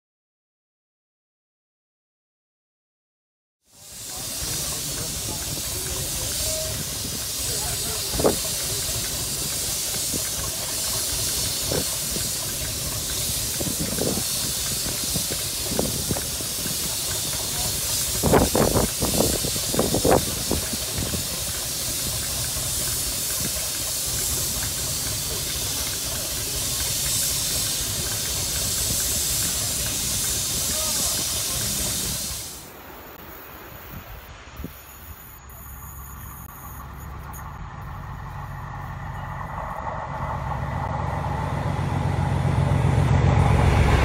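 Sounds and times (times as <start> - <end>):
steam hissing from locomotive: 3.7 - 36.9
low rumble: 36.8 - 44.0.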